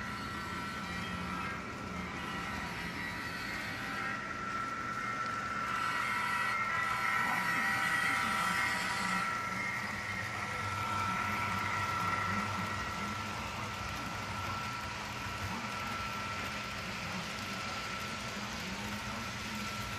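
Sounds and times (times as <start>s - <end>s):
model train electric whine: 0.0s - 19.9s.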